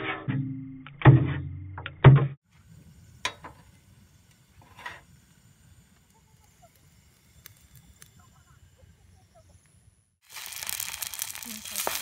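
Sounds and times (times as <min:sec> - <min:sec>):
faint chirps: 0:05.6 - 0:10.1.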